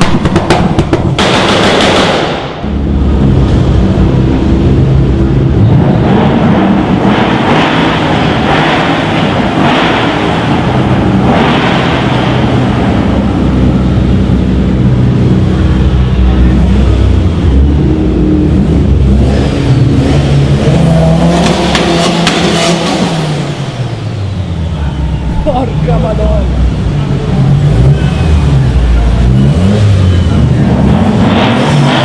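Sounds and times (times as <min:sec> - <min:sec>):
exhaust cracks: 0:00.0 - 0:24.2
car engine rumbling and revving: 0:00.0 - 0:32.0.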